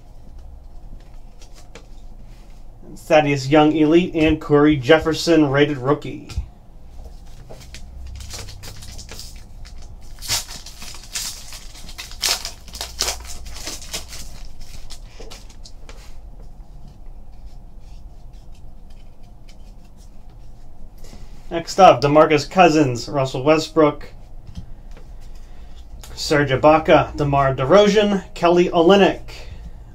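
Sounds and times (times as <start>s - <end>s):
cards rustling: 0.4s - 2.5s, 6.9s - 16.2s, 16.8s - 21.2s
foil wrapper tearing and crinkling: 7.7s - 15.8s.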